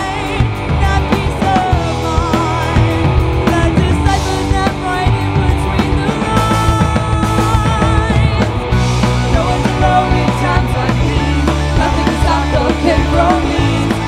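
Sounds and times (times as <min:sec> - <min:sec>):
drums: 0:00.0 - 0:14.0
electric guitars: 0:00.0 - 0:14.0
woman singing: 0:09.3 - 0:14.0.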